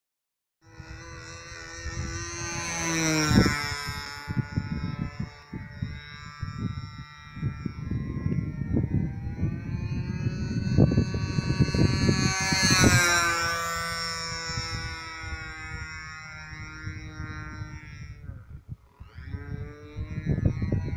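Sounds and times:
model plane engine buzzing: 0.6 - 20.9
wind rumbling on microphone: 0.7 - 20.9.

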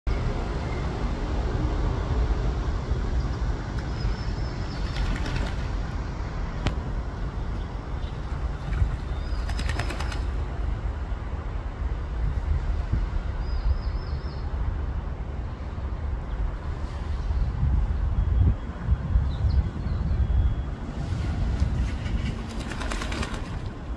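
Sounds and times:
duck splashing and flapping: 4.6 - 5.9, 8.5 - 10.4, 21.8 - 23.9.

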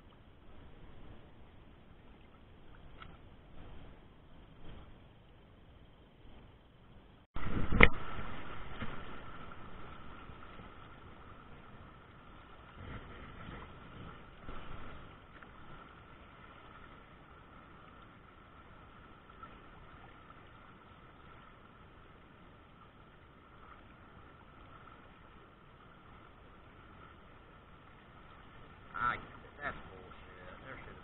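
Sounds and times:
river rushing over riffles: 7.4 - 20.0.

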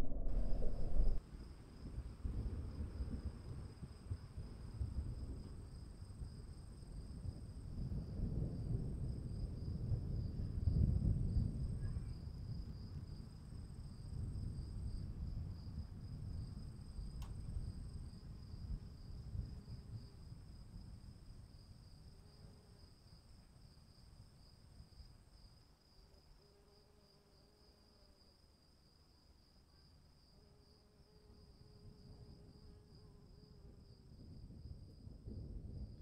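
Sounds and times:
low rumble: 0.0 - 1.2.

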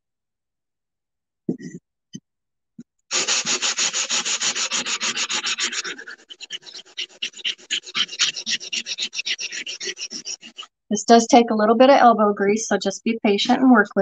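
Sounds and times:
sanding block rubbing ceramic tile: 3.1 - 10.7.

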